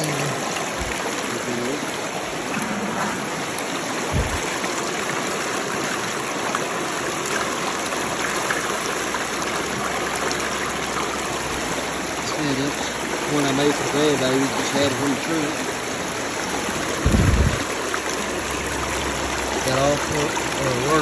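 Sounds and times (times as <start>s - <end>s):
creek water running over rocks: 0.0s - 21.0s
low thump: 4.1s - 4.5s.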